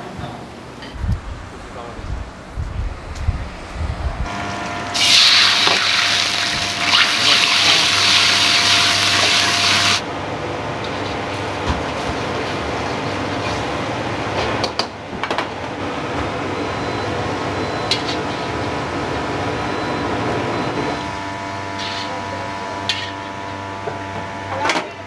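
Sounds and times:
extractor fan: 0.0 - 14.6
wok burners roaring: 0.0 - 25.0.

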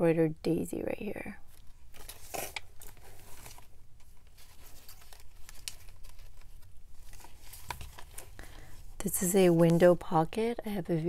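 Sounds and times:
paper pages rustling: 1.5 - 10.2.

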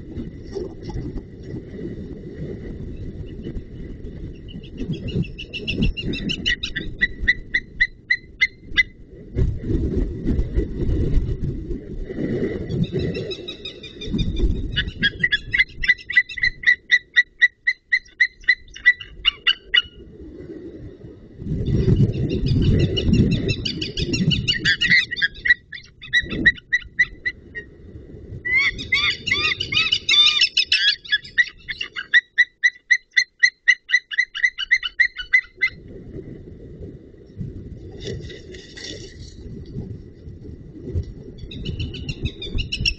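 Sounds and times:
eagles calling: 23.4 - 27.4, 28.5 - 35.7.

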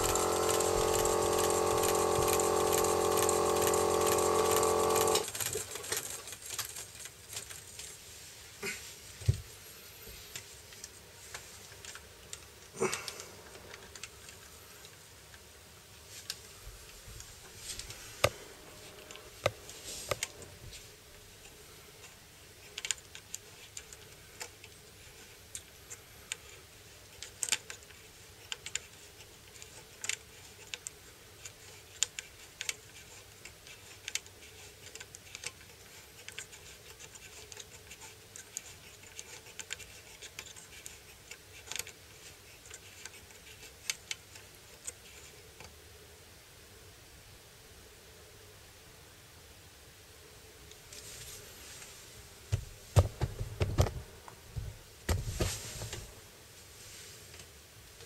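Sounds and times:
small metal parts clicking: 0.0 - 7.9.

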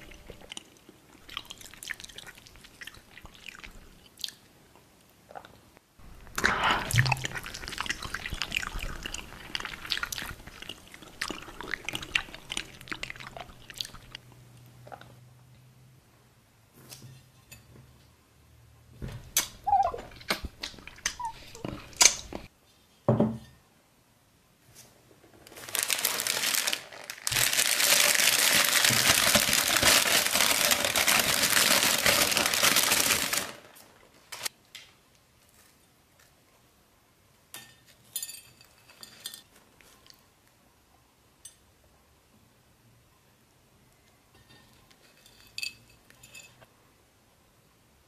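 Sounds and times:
plastic bag crinkling: 25.5 - 34.5
clinks and scrapes on china plate: 44.4 - 46.7.

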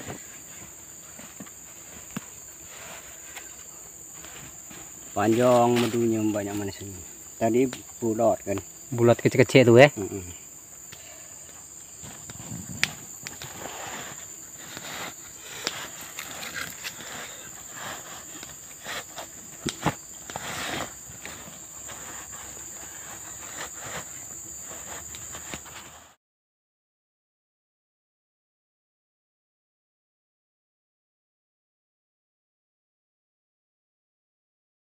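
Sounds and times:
high-pitched insect drone: 0.0 - 26.2.

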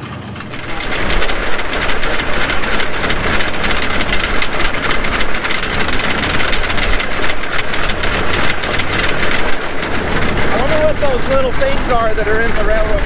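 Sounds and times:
railcar engine running: 0.0 - 13.0
wheels rattling on track: 0.0 - 13.0.

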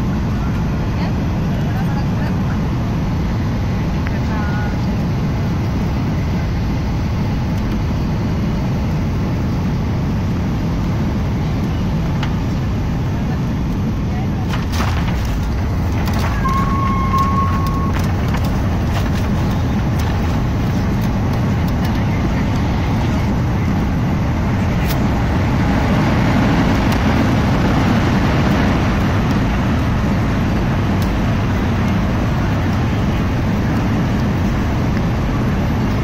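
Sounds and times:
jet cabin engine rush: 0.0 - 36.0
steady high tone: 16.2 - 18.5.

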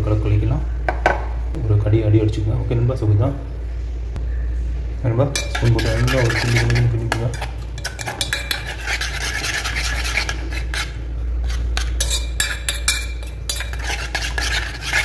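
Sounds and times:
metal spoon clinking in steel bowl: 5.4 - 15.0.

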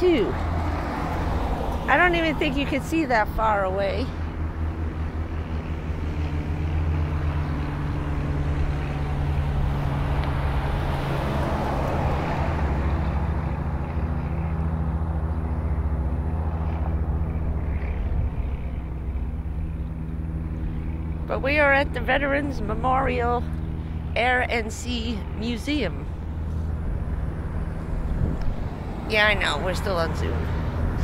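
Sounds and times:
vehicle engine idling: 0.0 - 31.0
car passing whoosh: 0.2 - 2.7, 5.7 - 19.5, 26.0 - 31.0.

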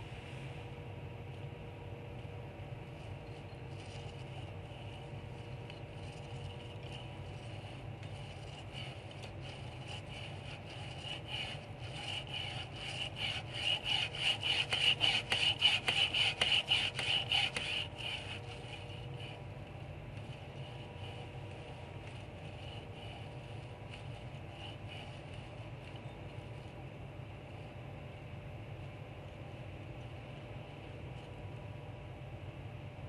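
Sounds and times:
faint steady hum: 0.0 - 33.0
chain pump rasping scrape: 3.0 - 19.4.

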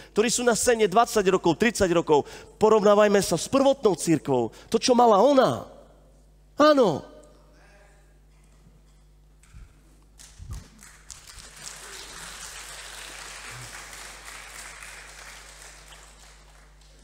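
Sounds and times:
audience applauding: 10.2 - 17.0.

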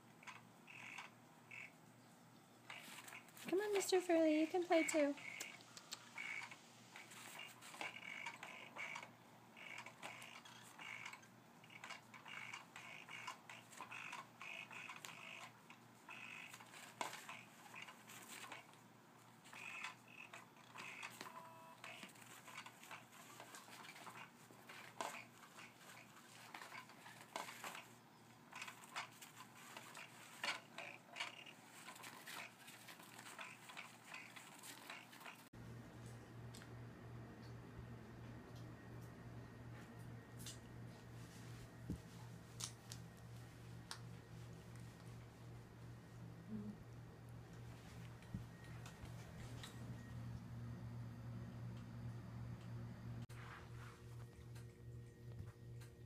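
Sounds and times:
cat toy motor whirring: 2.7 - 35.5.

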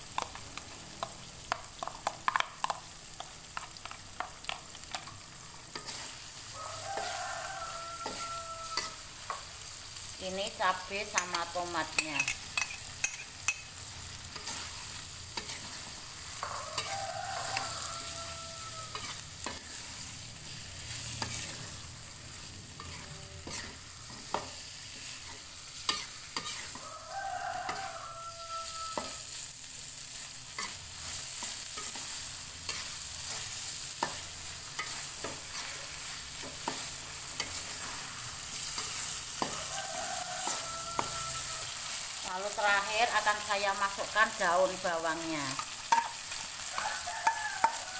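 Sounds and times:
food sizzling in a wok: 0.0 - 47.9
metal spatula scraping a pan: 3.6 - 27.0, 27.6 - 47.9
rooster crowing: 6.4 - 9.3, 16.3 - 19.8, 26.5 - 29.5, 39.4 - 43.4, 44.8 - 47.9.

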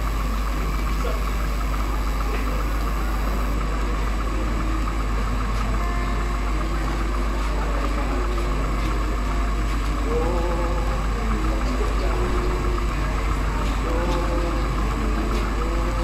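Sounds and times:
loud low hum: 0.0 - 16.0.

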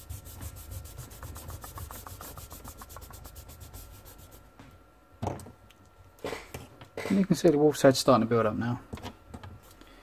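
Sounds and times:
eraser rubbing on paper: 0.0 - 4.5.

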